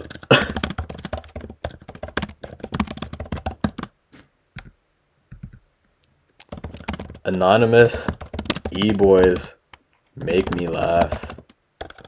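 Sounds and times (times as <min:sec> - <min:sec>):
typing on computer keyboard: 0:00.0 - 0:03.9, 0:06.4 - 0:09.5, 0:10.2 - 0:12.0.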